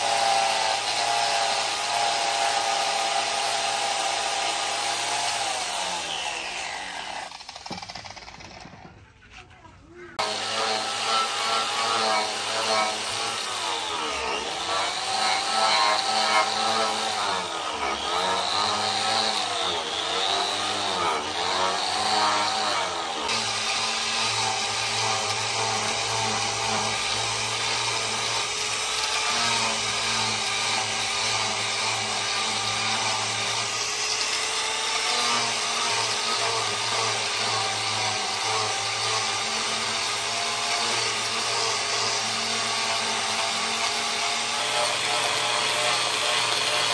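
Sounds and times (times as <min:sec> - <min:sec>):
angle grinder sanding wood: 0:00.0 - 0:08.7, 0:10.2 - 0:46.9.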